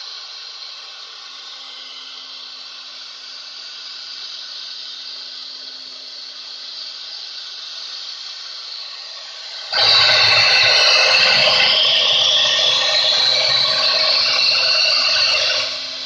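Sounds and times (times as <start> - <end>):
cnc router spindle whine: 8.0 - 16.0.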